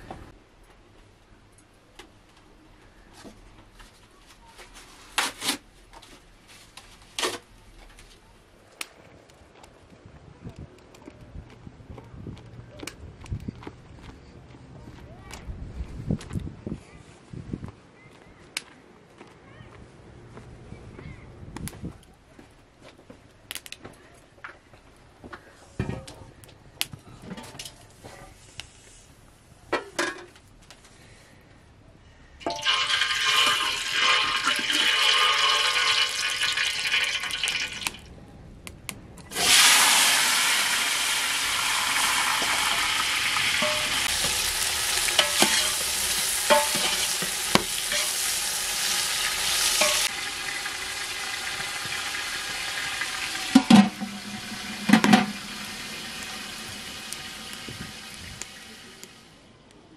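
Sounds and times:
food sizzling in hot oil: 32.5 - 38.0, 39.3 - 59.3.

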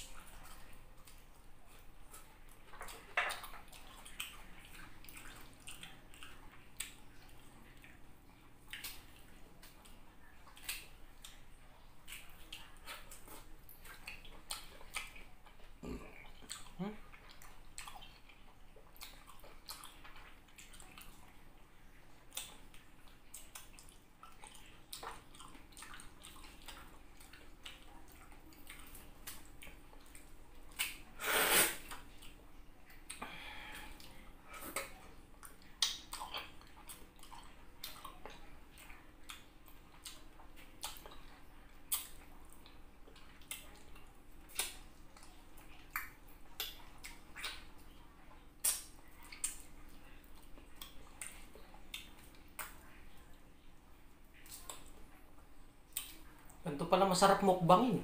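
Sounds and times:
wet chewing and smacking: 0.0 - 31.2, 31.8 - 58.0
fruit being opened at mouth: 48.6 - 49.7.

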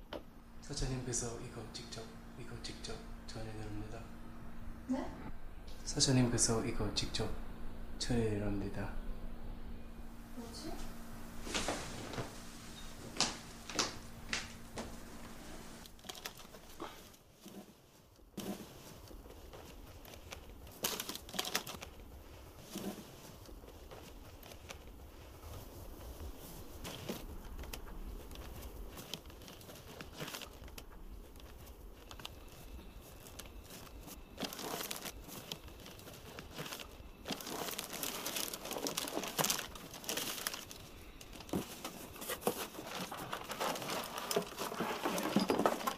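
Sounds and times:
wrapping paper rustling: 11.4 - 45.9.

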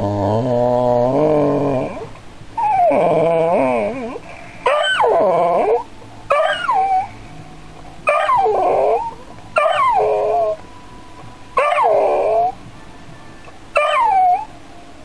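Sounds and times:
dog howling and whining: 0.0 - 7.2, 8.0 - 10.7, 11.6 - 12.7, 13.7 - 14.6.

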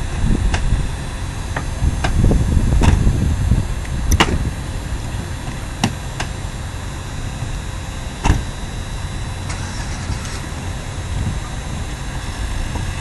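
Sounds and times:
street noise rumble: 0.0 - 13.0.

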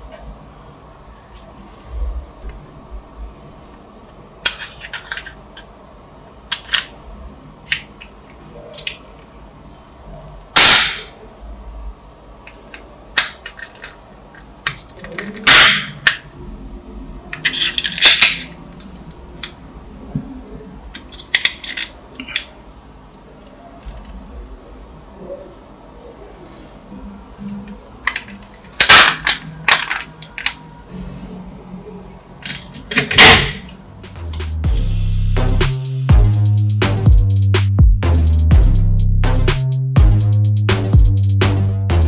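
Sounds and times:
loud sharp plastic cracks: 10.6 - 11.1, 28.8 - 30.6
plastic model parts clicking: 12.5 - 16.2, 20.9 - 22.5.

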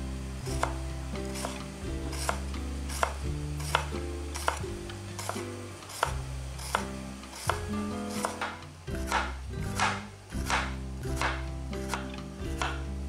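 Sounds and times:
soft background music: 0.0 - 13.0
knife slicing on wooden cutting board: 1.4 - 4.6, 5.2 - 12.8.

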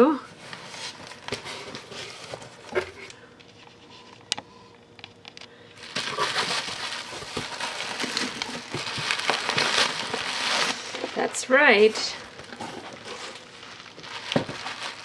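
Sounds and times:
bubble wrap crinkling: 5.7 - 15.0.

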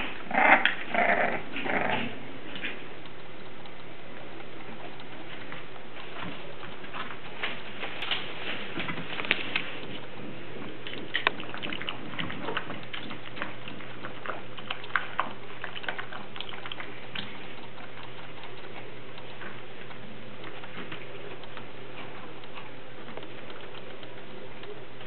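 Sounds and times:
puppy lapping water: 10.0 - 23.5.

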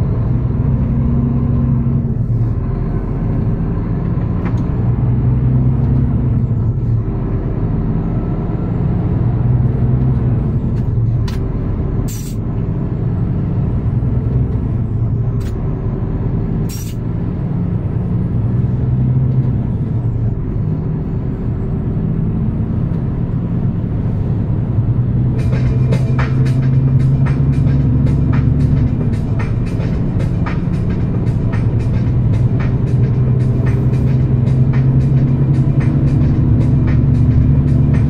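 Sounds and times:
road noise: 0.0 - 38.0
truck engine humming: 0.0 - 38.0
air brake hisses: 12.1 - 12.4, 16.7 - 17.0.

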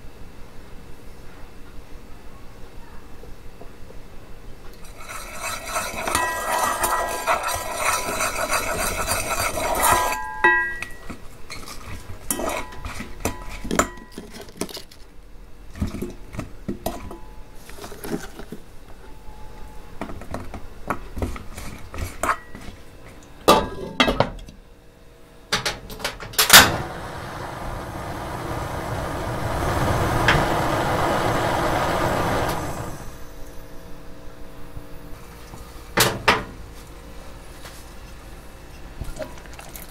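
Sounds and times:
utensils and dishes clinking: 4.8 - 15.0
steady noise: 26.5 - 33.6.

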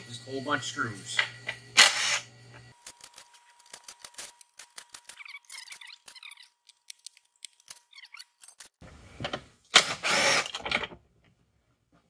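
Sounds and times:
power driver running: 0.0 - 5.1.

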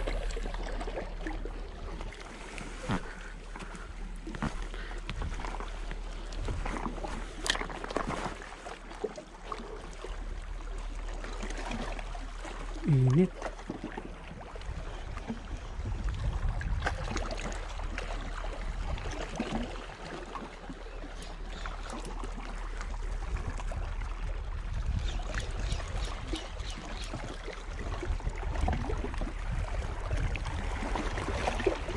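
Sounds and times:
sea water washing against rocks: 0.0 - 31.9
wind buffeting microphone: 14.5 - 17.9, 23.2 - 31.9.

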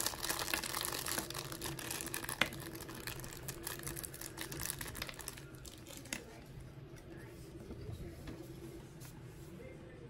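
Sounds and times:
plastic wrapping crinkling: 0.0 - 6.5.

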